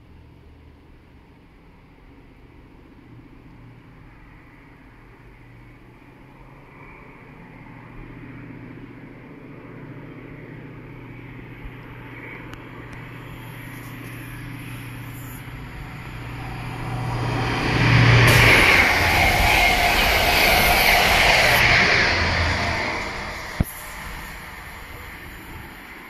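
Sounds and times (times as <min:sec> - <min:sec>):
diesel train engine hum: 0:00.0 - 0:26.0
train coaches rushing past: 0:13.4 - 0:26.0.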